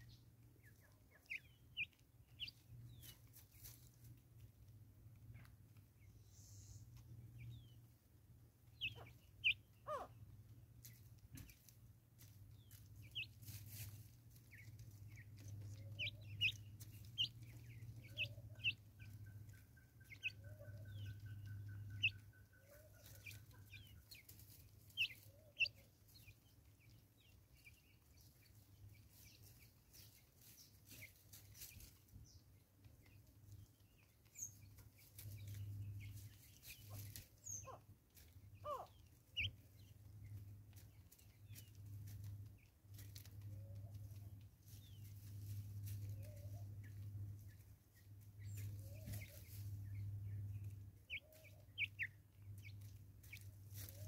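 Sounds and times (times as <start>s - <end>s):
steady bird trill: 15.7s - 24.3s.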